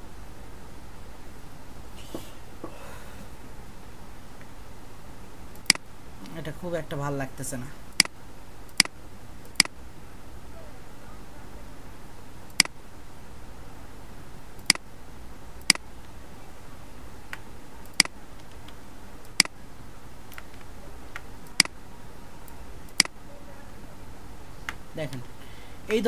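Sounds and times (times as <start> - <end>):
steady low hum: 0.0 - 26.0
computer mouse clicking: 5.5 - 5.8, 8.7 - 9.7, 20.3 - 21.8, 22.4 - 23.2.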